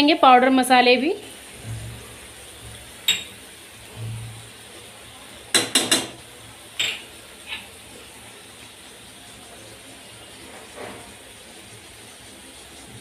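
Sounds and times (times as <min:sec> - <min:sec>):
steel utensils clinking on pan: 0:06.8 - 0:07.7.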